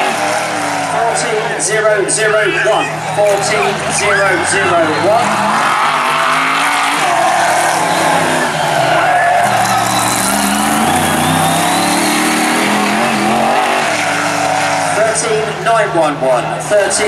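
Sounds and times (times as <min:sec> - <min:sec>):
race car engine revving: 0:00.0 - 0:17.0
tyres squealing: 0:02.4 - 0:15.0.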